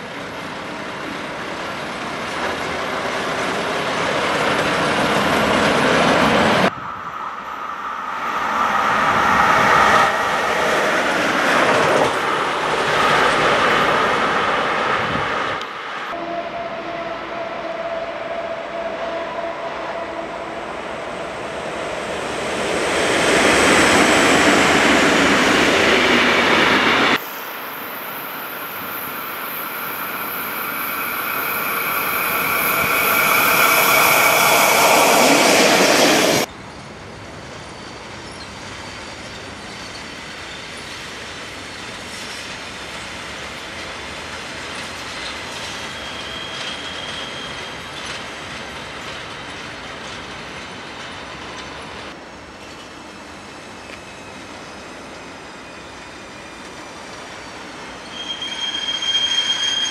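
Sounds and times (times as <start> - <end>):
electric train passing: 0.0 - 59.9
high-pitched wheel squeal: 28.1 - 36.5, 45.8 - 48.1, 57.4 - 59.9.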